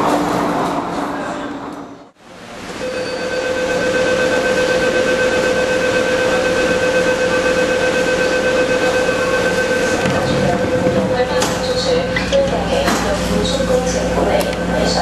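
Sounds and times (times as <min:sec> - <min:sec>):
electric train motor whine: 0:02.8 - 0:11.9.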